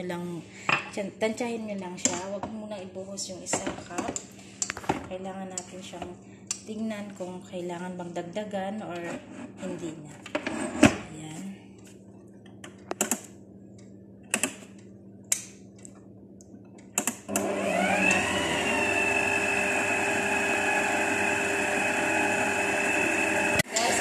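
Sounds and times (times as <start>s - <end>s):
sharp clicks and knocks: 12.5s - 13.3s
electric stand mixer whining: 17.3s - 24.0s.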